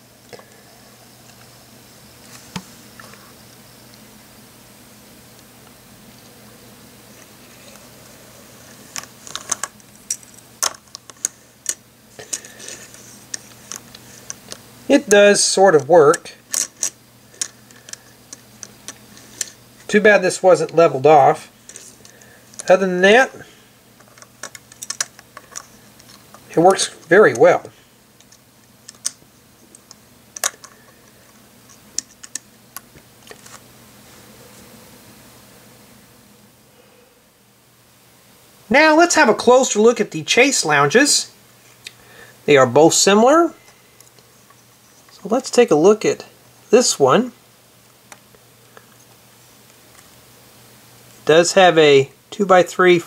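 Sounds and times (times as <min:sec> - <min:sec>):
plastic toy pieces clicking: 0:24.1 - 0:26.2.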